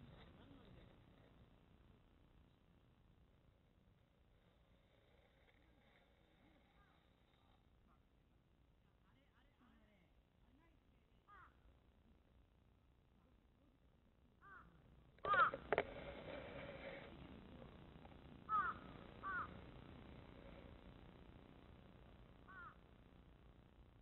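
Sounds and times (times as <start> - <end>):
crows cawing: 14.4 - 15.8, 18.5 - 19.6, 22.4 - 22.8.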